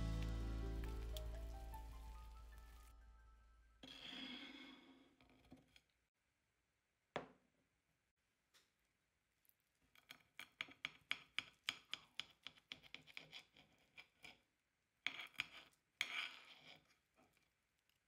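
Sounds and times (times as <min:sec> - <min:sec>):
knife scraping crunchy fritter: 0:15.1 - 0:17.4.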